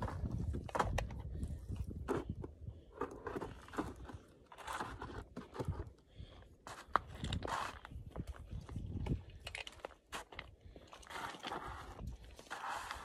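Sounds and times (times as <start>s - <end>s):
detector coil scraping dirt: 0.0s - 6.0s, 6.7s - 8.1s, 11.0s - 13.0s.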